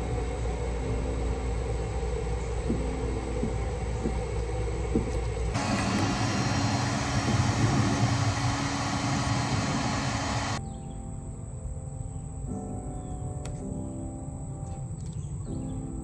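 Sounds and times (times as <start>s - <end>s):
heat gun blowing: 5.6s - 10.6s.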